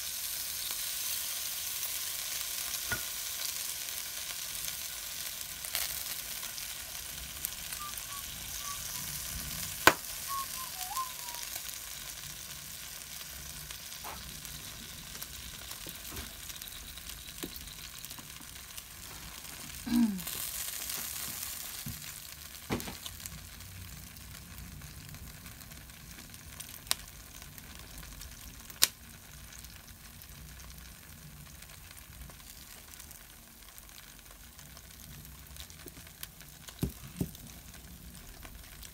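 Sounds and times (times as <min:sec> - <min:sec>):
meat sizzling on a grill: 0:00.0 - 0:38.9
sharp ticks and pops: 0:09.8 - 0:10.2, 0:14.0 - 0:18.8.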